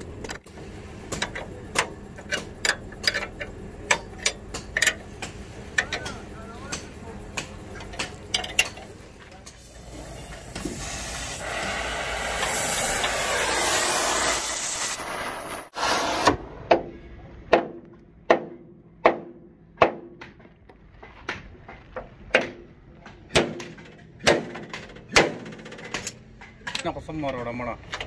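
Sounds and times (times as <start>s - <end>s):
loud steady hiss: 9.6s - 16.3s
hammer striking steel punch: 16.2s - 20.4s, 22.3s - 25.6s.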